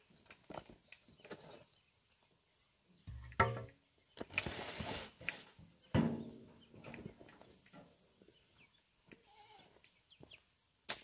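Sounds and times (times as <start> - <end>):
metal wheelbarrow clanging down: 3.1 - 3.7, 5.9 - 7.9
hoe scraping soil: 4.3 - 5.6
bleat-like animal call: 9.2 - 9.8.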